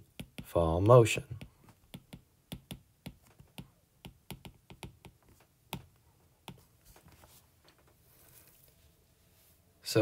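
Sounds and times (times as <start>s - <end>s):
stylus tapping on tablet screen: 0.0s - 0.6s, 1.3s - 6.7s.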